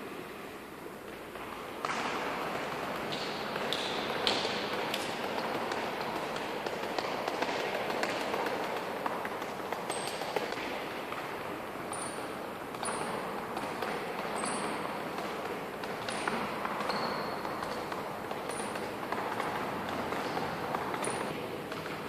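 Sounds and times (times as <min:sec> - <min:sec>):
shoe squeaks: 0:16.8 - 0:17.9.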